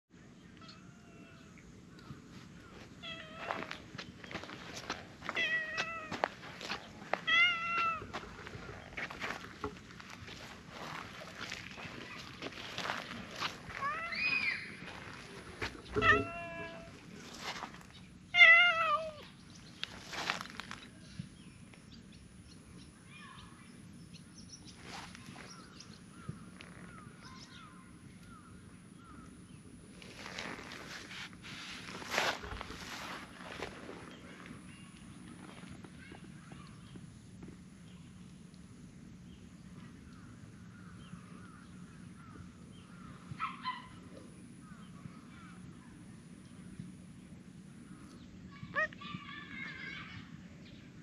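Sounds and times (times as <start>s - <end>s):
distant birds chirping: 0.1s - 18.3s, 31.9s - 50.9s
clicks and rustles in grass: 2.0s - 18.1s, 19.6s - 21.8s, 24.7s - 27.0s, 29.9s - 37.6s
cat meowing: 3.0s - 3.7s, 5.3s - 6.2s, 7.2s - 8.1s, 15.9s - 17.0s, 18.4s - 19.3s.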